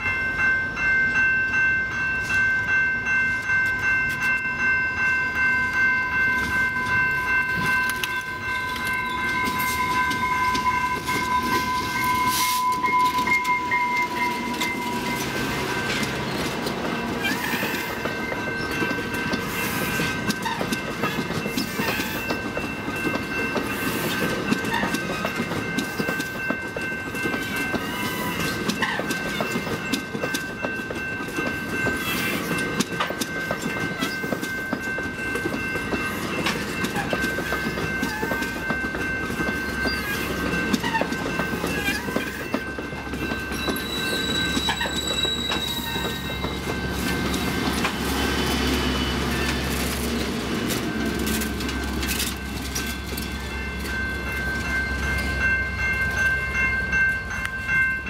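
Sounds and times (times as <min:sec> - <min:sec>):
diesel locomotive engine drone: 0:00.0 - 0:58.0
high-pitched ringing: 0:00.0 - 0:58.0
train wheels clacking over rail joints: 0:12.6 - 0:55.3.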